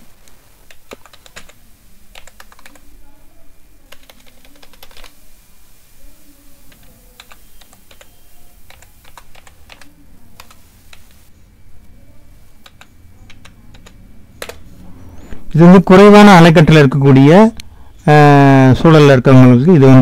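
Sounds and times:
typing on computer keyboard: 0:00.7 - 0:02.9, 0:03.9 - 0:05.2, 0:06.7 - 0:11.2, 0:12.6 - 0:14.6.

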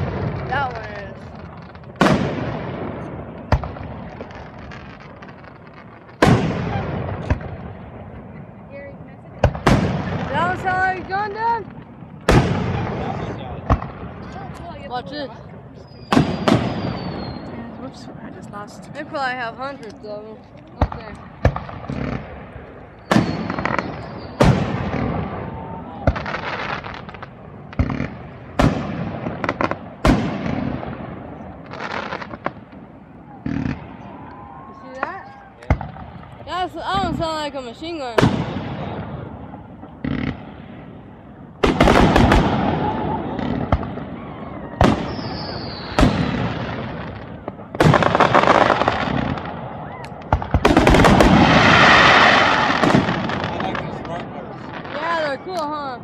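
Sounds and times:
rapid firework crackling: 0:00.0 - 0:56.0
firework shells bursting: 0:15.8 - 0:32.8, 0:44.8 - 0:55.8
high falling whistle: 0:44.1 - 0:46.0.

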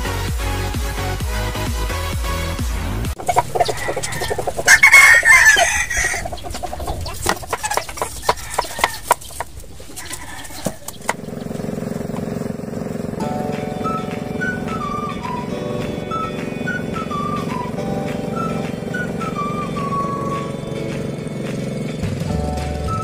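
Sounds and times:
rooster crowing: 0:03.2 - 0:11.1
chickens clucking: 0:03.2 - 0:12.3
small boat engine humming: 0:03.2 - 0:23.0
sharp clicks and knocks: 0:06.4 - 0:11.4.

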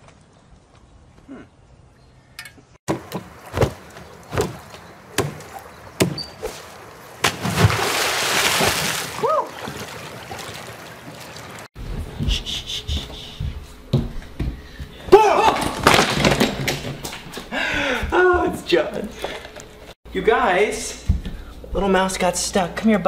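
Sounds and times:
water splashing in a pool: 0:02.9 - 0:11.8
sharp knocks: 0:05.2 - 0:06.2.

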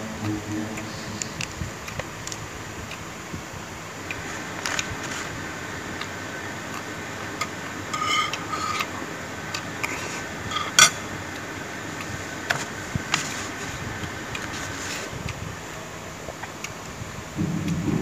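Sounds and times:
background hiss: 0:00.0 - 0:18.0
utensils clicking on a plate: 0:06.8 - 0:09.0, 0:09.6 - 0:11.1.

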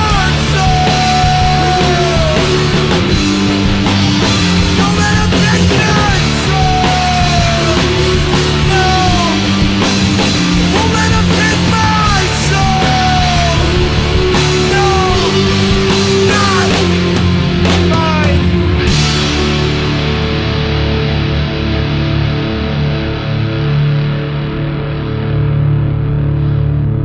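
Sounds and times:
rock drums and cymbals: 0:00.0 - 0:25.8
low bass notes: 0:00.0 - 0:27.0
sliding lead guitar: 0:00.0 - 0:27.0.

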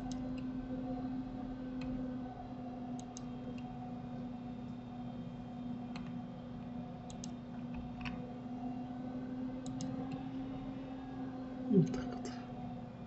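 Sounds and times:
computer mouse clicking: 0:00.0 - 0:00.4, 0:03.0 - 0:03.7, 0:05.9 - 0:06.2, 0:07.0 - 0:08.2, 0:09.6 - 0:10.2
low electrical hum: 0:00.0 - 0:13.0.

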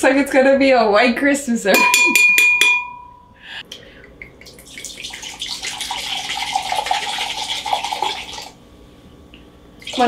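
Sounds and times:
liquid pouring into glass jar: 0:04.4 - 0:08.5.

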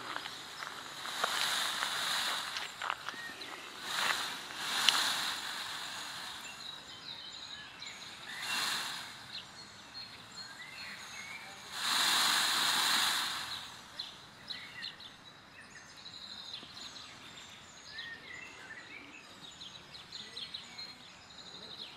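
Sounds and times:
loud rush of noise: 0:00.0 - 0:06.7, 0:08.1 - 0:09.3, 0:11.7 - 0:13.9
outdoor background noise: 0:00.0 - 0:21.9
small birds chirping: 0:00.0 - 0:21.9.

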